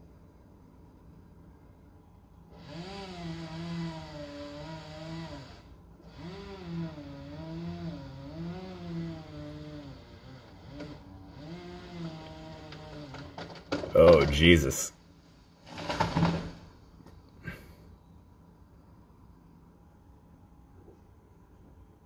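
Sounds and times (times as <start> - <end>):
chainsaw cutting: 2.5 - 14.2.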